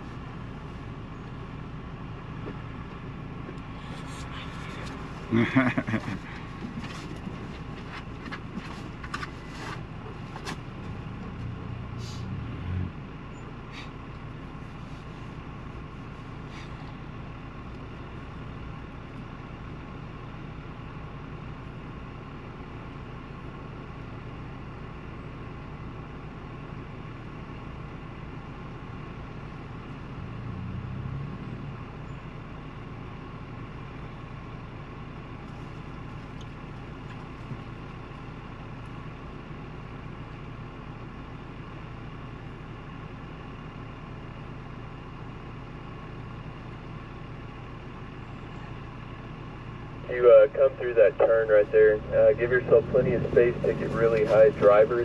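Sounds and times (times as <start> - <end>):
vehicle engine droning: 0.0 - 55.0.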